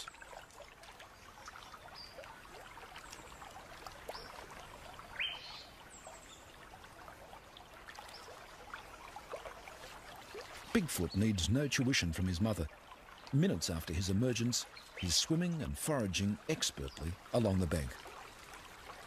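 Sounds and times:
water trickling: 0.0 - 19.0
bird chirps: 5.2 - 5.7.

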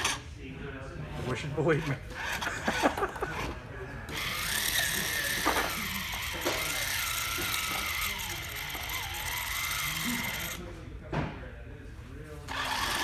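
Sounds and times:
electric motor whining: 4.1 - 10.6, 12.5 - 13.0.

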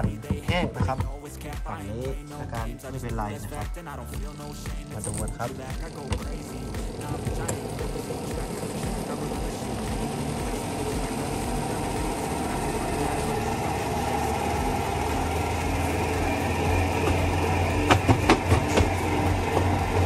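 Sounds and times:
tub knocking against housing: 0.0 - 1.2, 17.0 - 20.0
washing machine spinning hum: 5.3 - 20.0.

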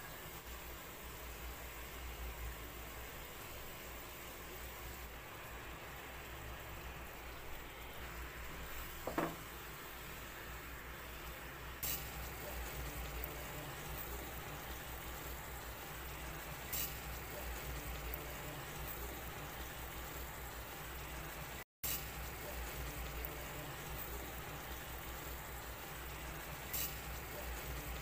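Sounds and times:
syrup bubbling and sizzling: 0.0 - 28.0.

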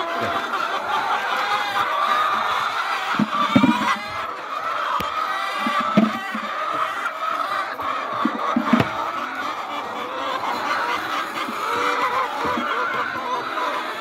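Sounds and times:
hens clucking and cackling: 0.0 - 14.0
short thumps: 3.2 - 4.0, 5.6 - 6.5, 8.2 - 9.0.

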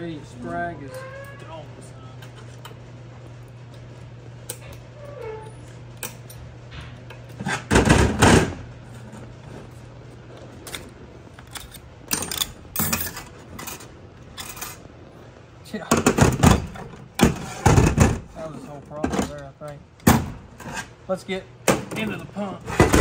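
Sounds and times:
steady low hum: 0.0 - 23.0
steel parts clinking and scraping: 10.6 - 14.9
metallic clatter: 11.5 - 14.9.

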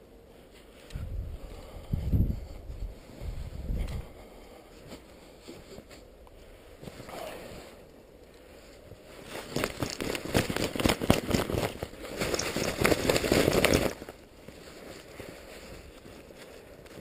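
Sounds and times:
fabric rustling and crackling: 8.4 - 17.0.

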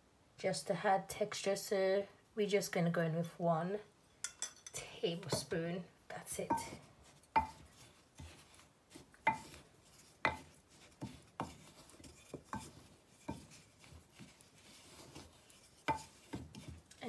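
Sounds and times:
spatula scraping through powder: 6.4 - 17.0
spatula tapping glass: 7.4 - 7.6, 15.9 - 16.8.

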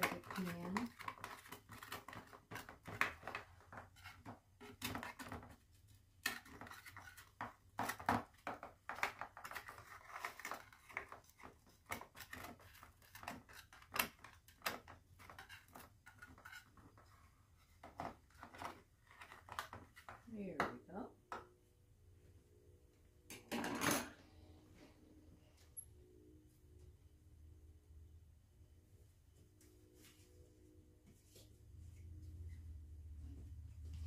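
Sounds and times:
knife scraping metal pan: 15.2 - 16.9.

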